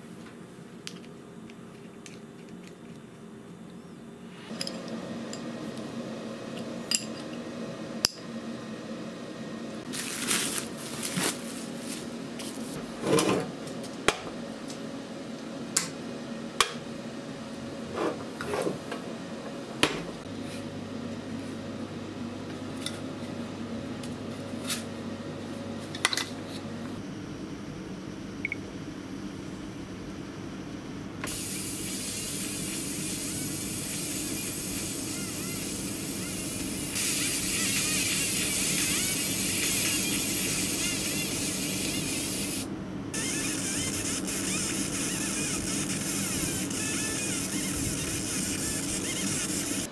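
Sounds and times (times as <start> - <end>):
rustling handling noise: 9.9 - 12.8.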